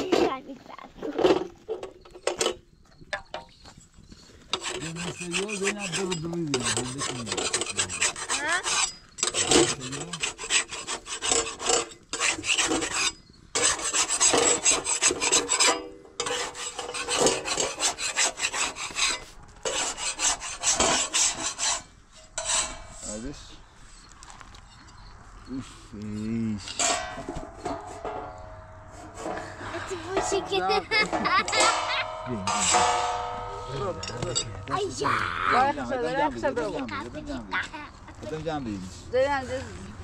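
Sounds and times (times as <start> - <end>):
metal spatula scraping griddle: 4.5 - 23.5, 26.7 - 36.3.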